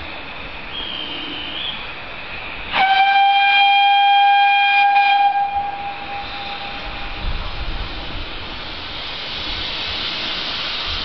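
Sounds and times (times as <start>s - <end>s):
steam locomotive whistle: 0.7s - 1.8s, 2.7s - 7.2s.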